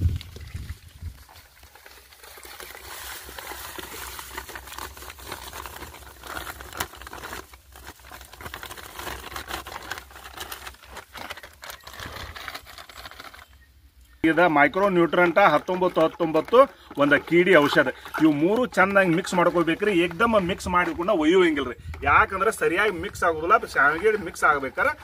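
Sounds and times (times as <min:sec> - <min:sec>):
powder pattering into water: 0:00.0 - 0:13.4, 0:14.4 - 0:25.0
plastic packet crinkling: 0:00.1 - 0:13.7, 0:14.3 - 0:25.0.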